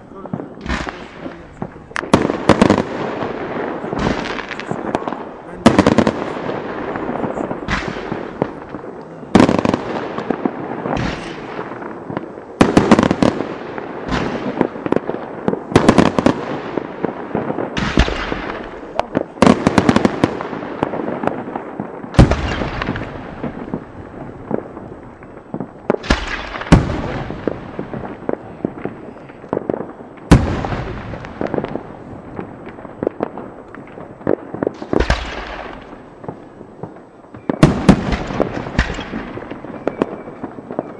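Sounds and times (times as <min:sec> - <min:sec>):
fireworks bursting: 0:00.0 - 0:40.9
small crackling pops: 0:31.3 - 0:40.9.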